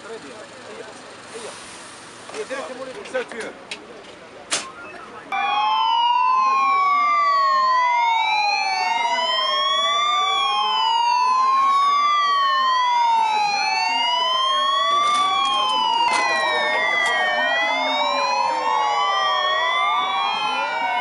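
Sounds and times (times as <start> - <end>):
ambulance sirens wailing: 4.5 - 21.0
fast warbling siren tone: 4.6 - 21.0.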